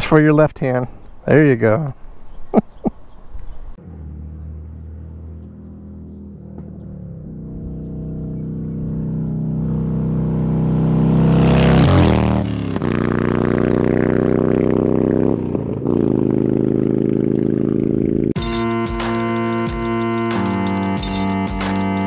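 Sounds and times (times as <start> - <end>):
motorcycle engine revving: 3.7 - 22.0
music: 18.4 - 22.0.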